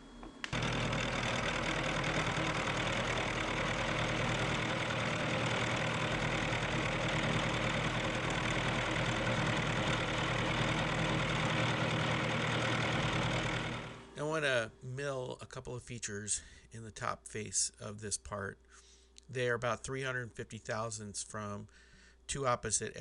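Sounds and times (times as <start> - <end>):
milling machine motor hum: 0.0 - 14.3
end mill cutting steel: 0.5 - 14.2.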